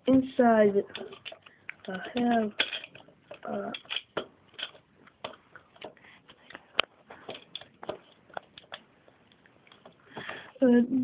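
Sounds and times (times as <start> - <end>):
plastic bricks clicking: 0.8 - 8.9.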